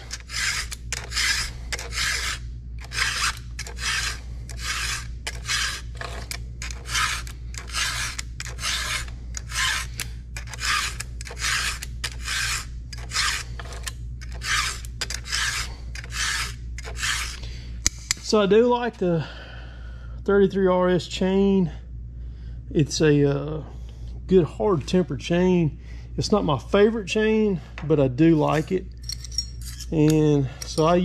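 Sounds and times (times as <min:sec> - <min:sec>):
file rasping across chain cutters: 0:00.0 - 0:17.4, 0:28.5 - 0:31.0.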